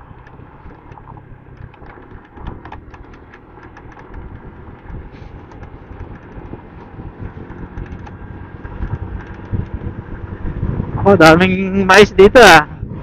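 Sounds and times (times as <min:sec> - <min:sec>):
scooter engine and road rumble: 0:00.0 - 0:13.0
light clicks and ticks: 0:00.2 - 0:09.8.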